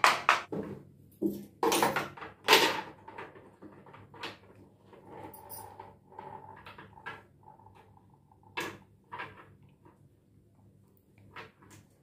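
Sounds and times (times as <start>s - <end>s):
plastic shelf knocking and scraping: 0.0s - 5.3s.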